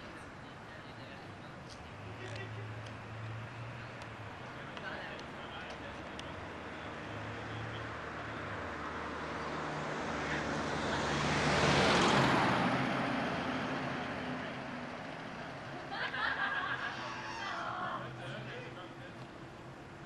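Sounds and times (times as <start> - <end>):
car driving past: 6.6 - 15.8, 16.6 - 18.7.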